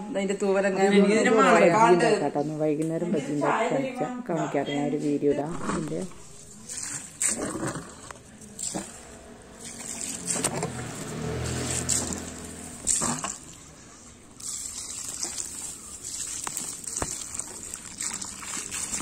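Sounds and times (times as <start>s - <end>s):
hose water trickling into hole: 14.4s - 19.0s.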